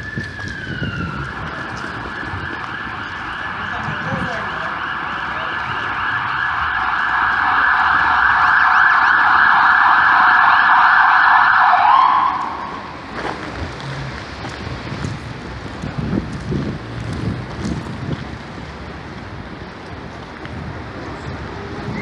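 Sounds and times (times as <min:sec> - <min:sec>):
ambulance siren: 0:00.0 - 0:13.1.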